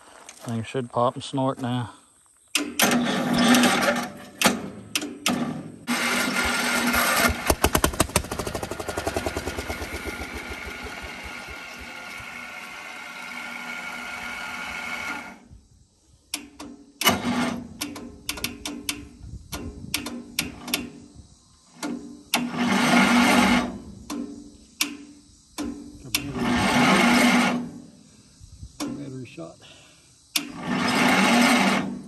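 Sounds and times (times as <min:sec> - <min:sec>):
small engine cranking by starter: 0:05.9 - 0:15.4, 0:22.4 - 0:23.8, 0:26.2 - 0:27.8, 0:30.4 - 0:32.0.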